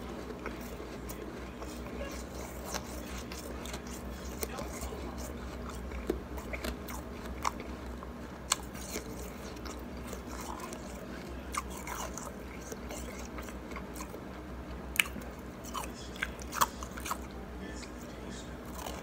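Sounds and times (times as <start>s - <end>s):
ice being chewed: 0.0s - 14.3s, 14.9s - 19.0s.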